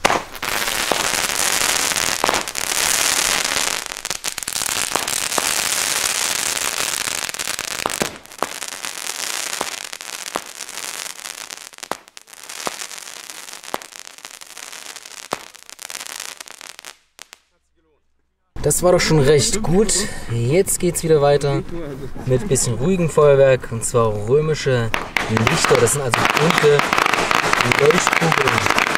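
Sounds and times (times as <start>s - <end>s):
dense firework crackling: 0.0s - 17.6s, 24.9s - 28.9s
firework comets popping: 0.0s - 17.6s, 24.9s - 28.9s.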